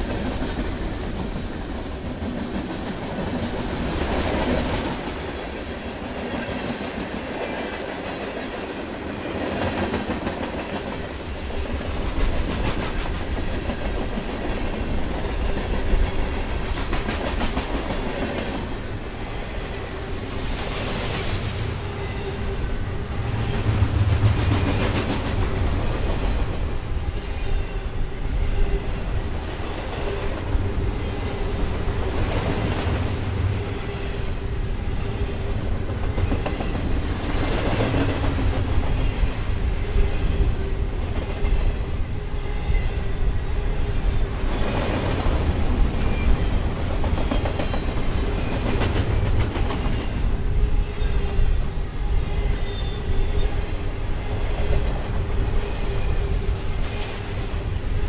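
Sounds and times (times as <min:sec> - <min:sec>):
freight train rumbling past: 0:00.0 - 0:58.0
high-pitched wheel squeal: 0:20.2 - 0:22.5.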